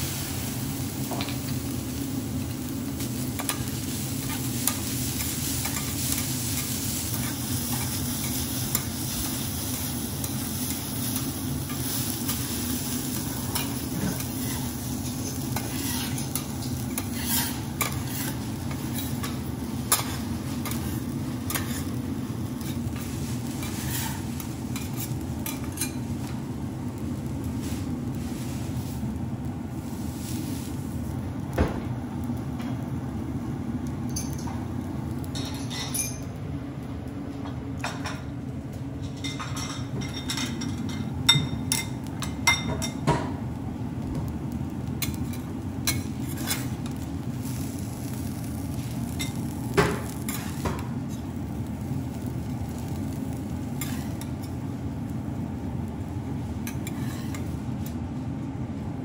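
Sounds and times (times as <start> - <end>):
low background hum: 0.0 - 59.0
metal spatulas scraping griddle: 11.1 - 22.0, 22.6 - 26.0, 45.0 - 48.2, 50.0 - 51.2, 53.8 - 54.3, 56.6 - 57.5.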